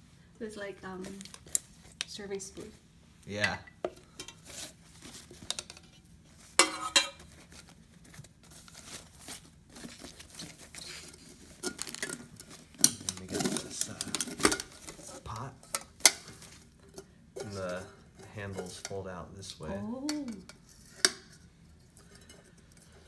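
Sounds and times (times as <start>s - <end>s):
pots clanking together: 6.6s - 7.4s, 11.5s - 19.1s
paper rustling and crinkling: 7.3s - 15.3s.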